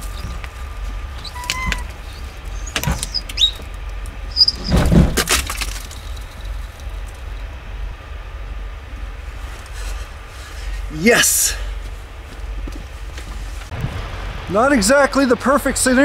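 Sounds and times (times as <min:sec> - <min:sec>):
roof panels creaking and knocking: 0:00.0 - 0:07.6
low steady hum: 0:00.0 - 0:16.0
ice cracking: 0:05.0 - 0:07.2.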